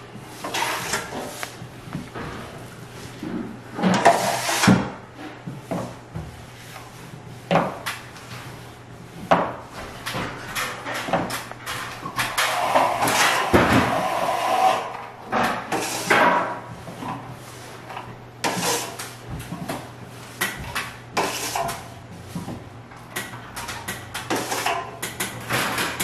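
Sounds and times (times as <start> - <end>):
trowel scraping plaster: 0.4 - 1.5, 4.0 - 4.8, 15.7 - 16.2, 18.4 - 19.0, 21.2 - 21.8.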